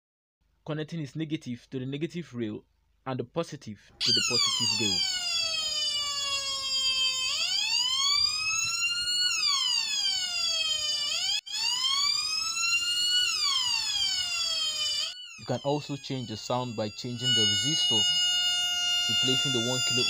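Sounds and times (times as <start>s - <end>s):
electronic siren wailing: 4.0s - 20.0s.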